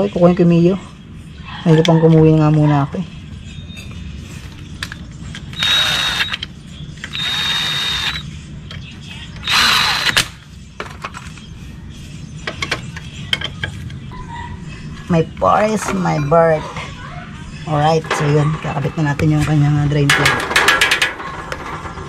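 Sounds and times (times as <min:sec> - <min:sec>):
cordless drill whining: 0:05.6 - 0:06.4, 0:07.1 - 0:08.2, 0:09.4 - 0:10.2.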